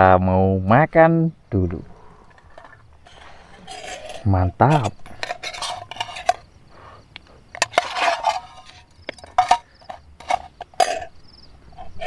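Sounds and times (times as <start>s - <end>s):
spoon scraping metal bowl: 2.2s - 6.5s, 7.6s - 11.2s.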